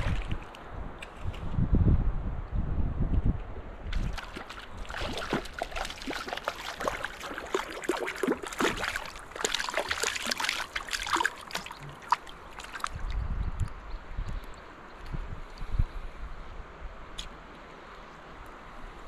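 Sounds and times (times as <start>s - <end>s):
fish splashing in water: 3.9s - 13.2s.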